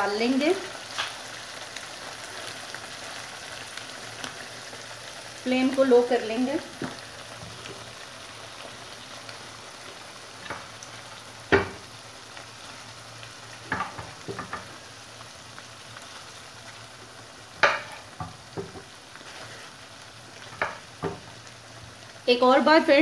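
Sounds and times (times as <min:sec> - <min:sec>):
food sizzling in a frying pan: 0:00.0 - 0:23.0
spatula knocking against pan: 0:17.6 - 0:18.8.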